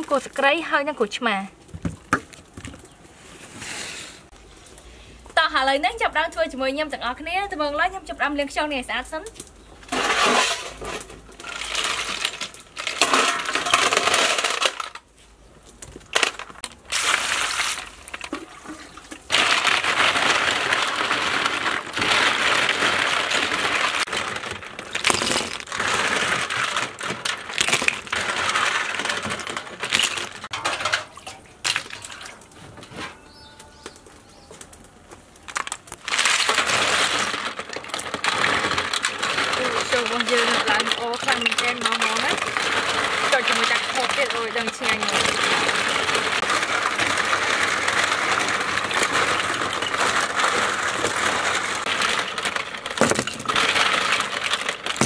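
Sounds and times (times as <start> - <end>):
snail shells clattering: 9.6 - 15.1, 15.8 - 32.2, 35.4 - 55.0.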